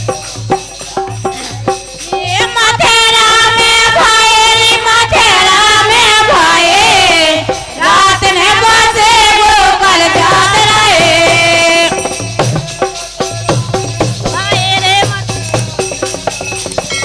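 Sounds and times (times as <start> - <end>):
women singing folk song: 2.1 - 12.4.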